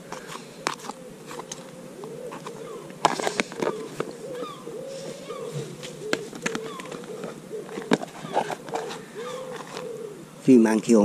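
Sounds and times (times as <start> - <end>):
birds chirping: 0.0 - 11.0
pigeon cooing: 0.0 - 11.0
plastic tubs clicking: 2.3 - 4.2, 5.8 - 9.8.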